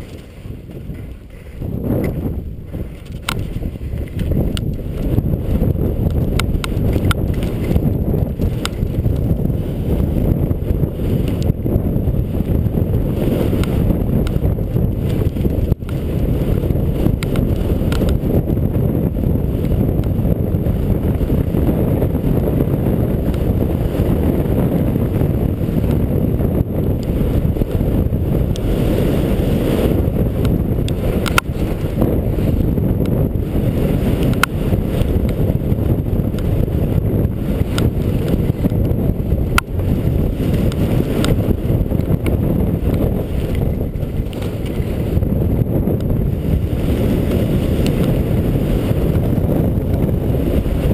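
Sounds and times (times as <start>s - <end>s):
skis sliding on snow: 0.0s - 5.2s, 46.4s - 49.2s
wind rush on microphone: 0.0s - 50.9s.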